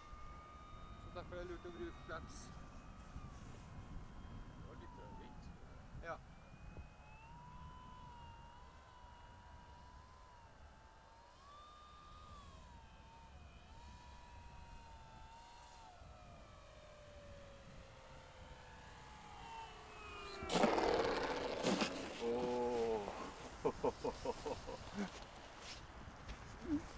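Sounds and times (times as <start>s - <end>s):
model plane motor whining: 0.0s - 23.6s
loud noisy burst: 20.2s - 22.4s.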